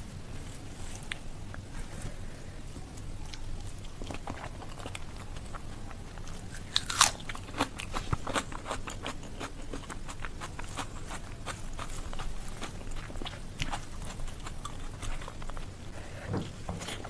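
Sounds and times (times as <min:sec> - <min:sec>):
person chewing food: 0:00.6 - 0:17.0
wet chewing clicks and crunches: 0:03.2 - 0:15.9.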